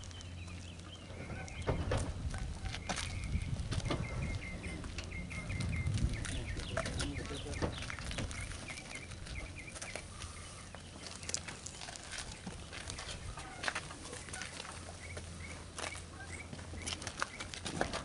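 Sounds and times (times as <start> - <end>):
wind rumble on microphone: 0.0 - 10.5
bird chirping: 0.0 - 17.6.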